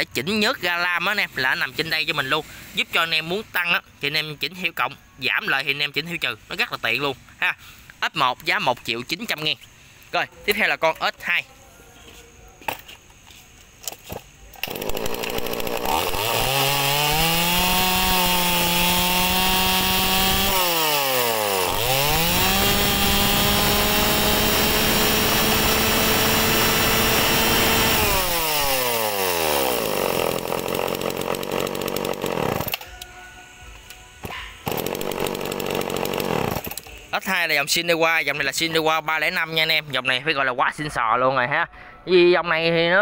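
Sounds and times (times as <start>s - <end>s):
chainsaw revving: 14.6s - 32.8s, 34.6s - 36.9s.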